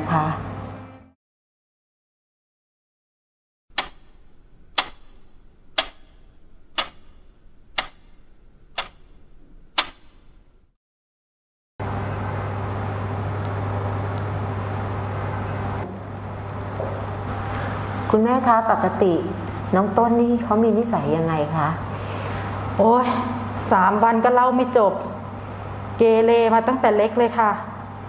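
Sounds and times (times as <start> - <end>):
room tone with low hum: 0.0 - 1.2, 3.7 - 10.8, 11.8 - 28.0
clock ticking: 3.7 - 10.3.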